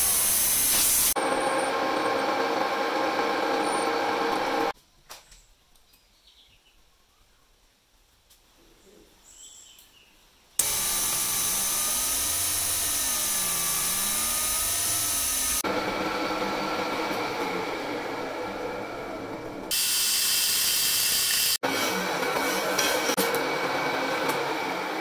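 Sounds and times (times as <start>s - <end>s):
metal lathe whining: 1.1s - 4.7s, 10.6s - 19.8s.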